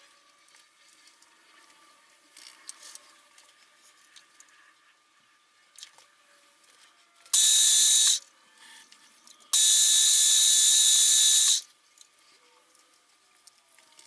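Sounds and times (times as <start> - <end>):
drill screeching into metal: 7.4 - 8.2, 9.6 - 11.6.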